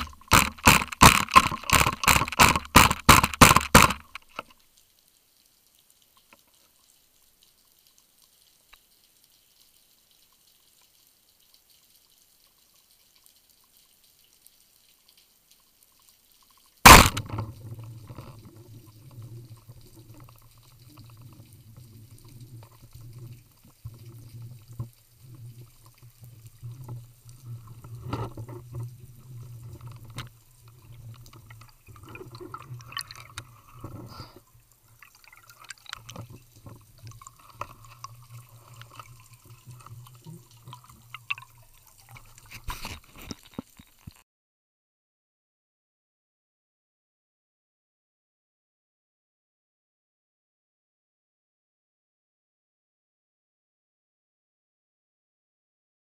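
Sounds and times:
bubbling: 0.0s - 4.5s, 16.9s - 44.2s
small knocks: 0.0s - 4.5s
underwater water noise: 0.0s - 44.2s
speargun shot crack: 16.9s - 17.4s.

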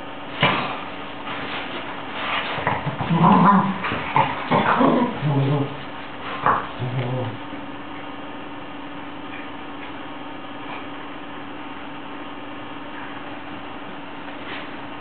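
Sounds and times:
dogs growling: 2.2s - 8.2s.

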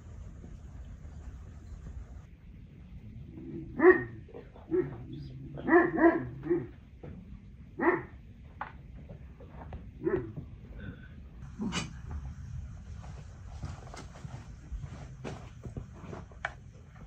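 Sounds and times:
dog barking: 3.8s - 6.8s, 7.8s - 8.2s, 10.0s - 10.4s.

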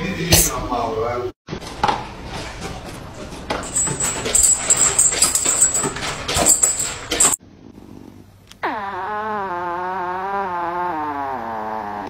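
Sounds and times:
kibble clinking against bowl: 3.5s - 7.4s.

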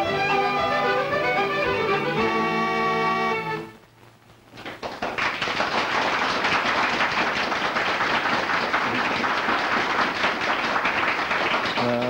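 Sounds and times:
audience clapping: 4.4s - 12.0s.

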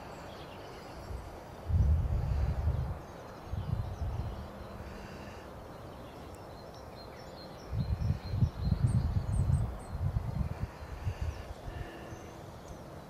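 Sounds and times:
wind buffeting microphone: 1.0s - 5.0s, 7.5s - 12.1s
faint bird chirps: 2.5s - 13.0s.

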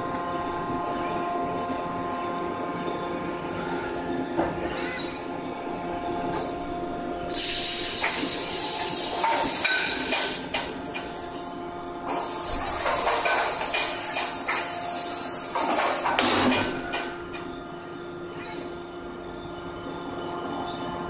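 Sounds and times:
machinery hum: 0.0s - 21.0s
loud air jet hissing: 7.3s - 16.2s.

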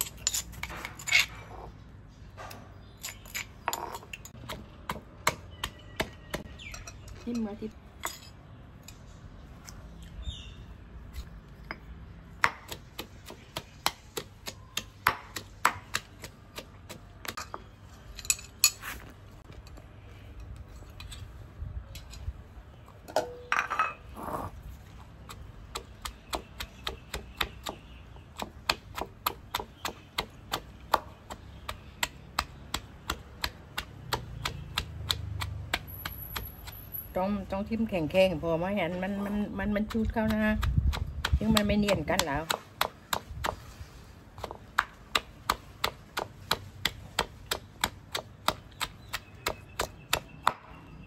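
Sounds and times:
stone pestle pounding in mortar: 39.7s - 43.6s.

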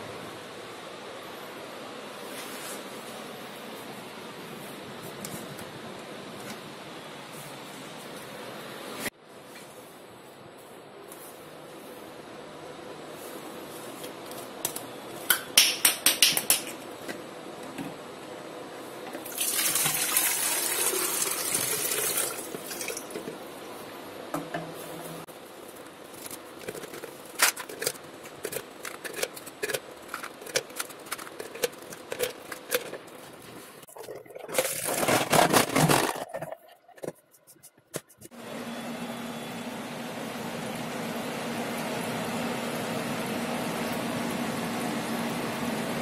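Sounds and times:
water pouring into plastic jar: 33.9s - 36.3s
ice cubes clinking: 34.0s - 36.6s.

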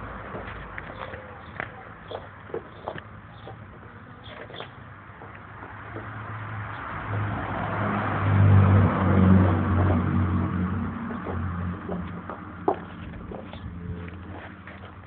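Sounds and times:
vehicle driving past: 5.5s - 14.8s.

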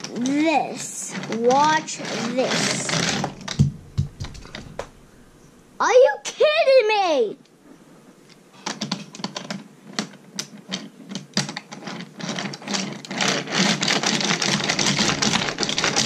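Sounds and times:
wooden toy train rattling on track: 0.0s - 3.6s, 8.6s - 16.0s.

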